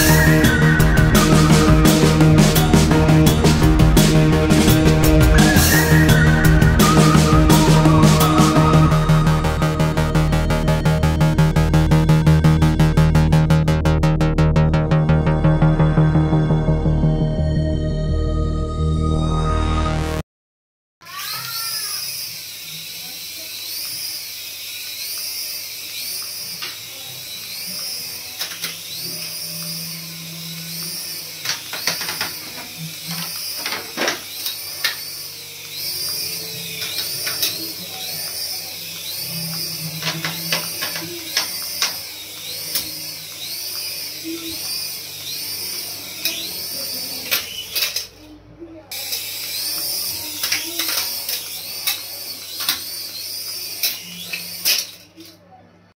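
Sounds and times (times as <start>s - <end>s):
toy helicopter rotor motors whining: 0.0s - 13.8s, 21.0s - 55.6s
sharp clicks: 23.7s - 48.1s, 48.9s - 55.3s
sharp clicks and knocks: 30.6s - 37.6s, 39.0s - 45.4s.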